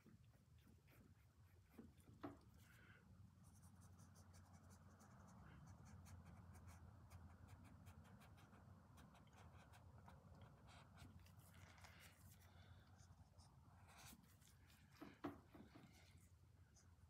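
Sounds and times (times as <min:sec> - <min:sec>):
low steady hum: 0:00.0 - 0:17.0
paintbrush scratching on canvas: 0:03.4 - 0:17.0.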